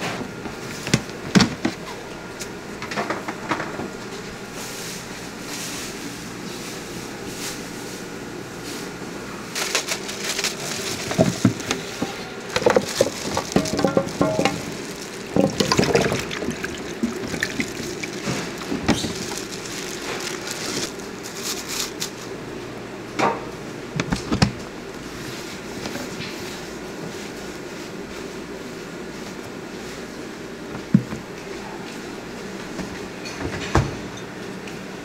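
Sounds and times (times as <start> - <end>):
low background hum: 0.0 - 35.0
wet squelching and slapping: 14.6 - 20.9.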